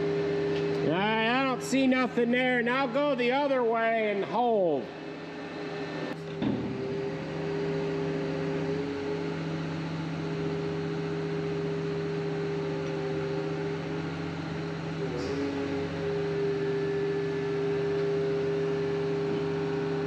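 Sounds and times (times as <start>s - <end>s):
loader engine running under load: 0.0s - 20.0s.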